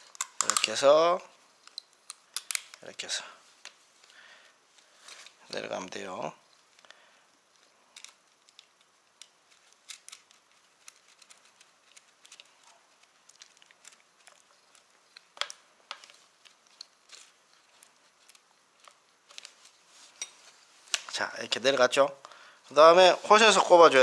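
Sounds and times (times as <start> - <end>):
plastic connectors clicking: 0.0 - 1.0, 1.6 - 2.9, 7.9 - 19.6.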